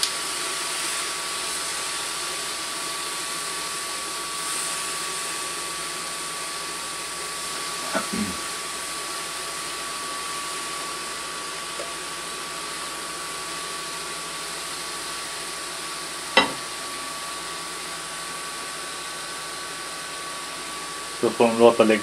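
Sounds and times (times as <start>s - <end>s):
thin fan whine: 0.0s - 22.0s.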